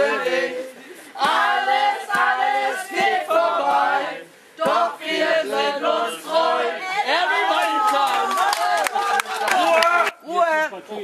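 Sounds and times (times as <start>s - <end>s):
group of people singing: 0.0s - 7.6s.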